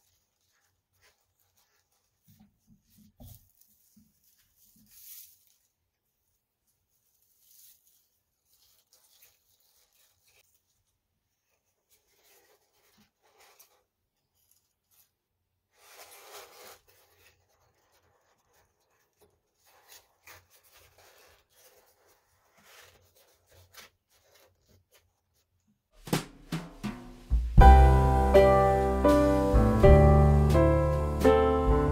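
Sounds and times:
paper shred rustling: 0:00.0 - 0:05.8, 0:07.0 - 0:25.4
sharp percussive hits: 0:26.0 - 0:30.7
music: 0:26.0 - 0:31.9.

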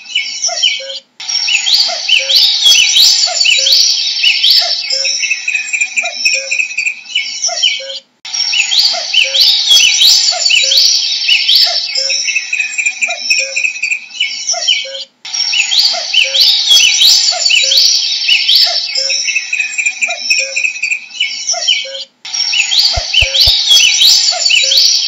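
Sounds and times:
songbirds chirping and trilling: 0:00.0 - 0:25.0
cuckoo calling: 0:18.6 - 0:24.9.

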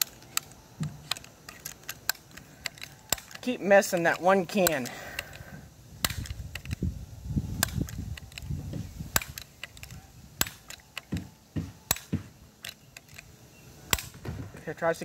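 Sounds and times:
bb gun clicks and knocks: 0:00.0 - 0:05.4, 0:09.1 - 0:13.3.

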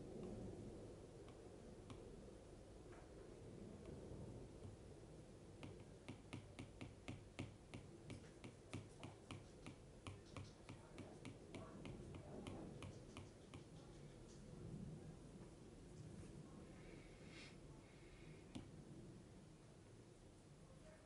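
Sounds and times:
stylus tip tapping on glass screen: 0:05.6 - 0:13.7.

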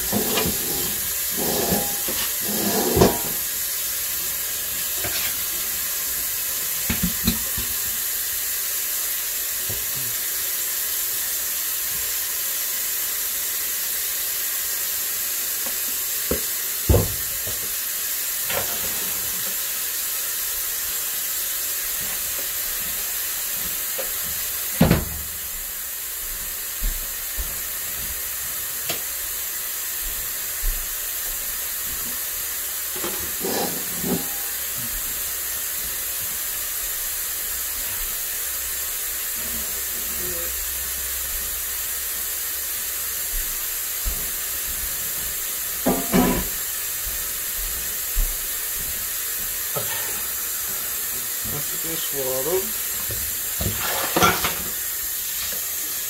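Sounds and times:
dishes knocking and clinking: 0:00.0 - 0:03.4, 0:33.0 - 0:34.6, 0:45.8 - 0:46.6, 0:53.0 - 0:54.7
tap running into sink: 0:00.0 - 0:03.5, 0:06.8 - 0:08.0, 0:15.6 - 0:17.8, 0:23.6 - 0:25.4, 0:45.2 - 0:46.6, 0:53.0 - 0:55.8.

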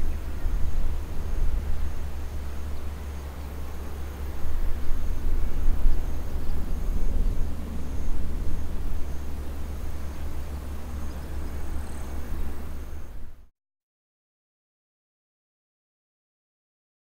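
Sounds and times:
wind buffeting microphone: 0:00.0 - 0:13.4
distant jet rumble: 0:00.0 - 0:13.5.

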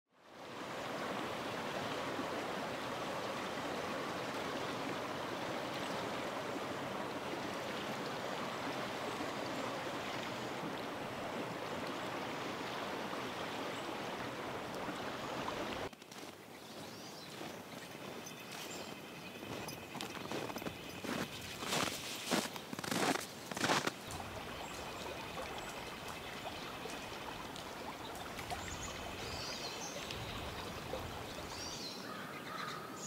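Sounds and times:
creek running: 0:00.2 - 0:33.0
outdoor ambience: 0:14.4 - 0:29.4
footsteps in snow: 0:15.9 - 0:26.2.

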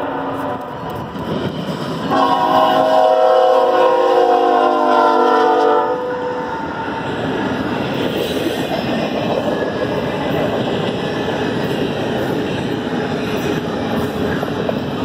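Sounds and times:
steel wheels on rail: 0:00.0 - 0:15.0
locomotive horn chord: 0:02.1 - 0:06.2.

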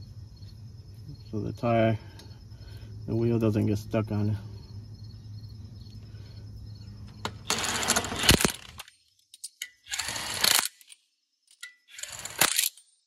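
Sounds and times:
crickets chirping: 0:00.0 - 0:13.0
impact wrench bursts: 0:07.3 - 0:08.8, 0:09.8 - 0:10.8, 0:11.9 - 0:12.7.

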